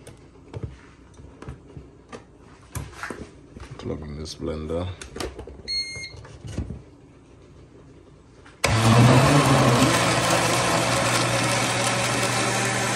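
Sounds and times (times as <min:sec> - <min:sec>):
blender motor running: 0:08.6 - 0:12.9.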